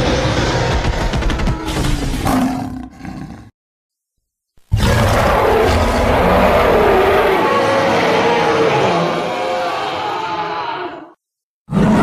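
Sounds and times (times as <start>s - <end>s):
sound effect: 0.0s - 3.2s
creature roaring: 4.7s - 12.0s.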